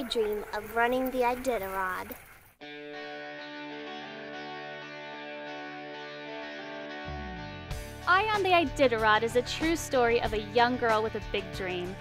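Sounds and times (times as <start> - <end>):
guitar background music: 2.6 - 12.0.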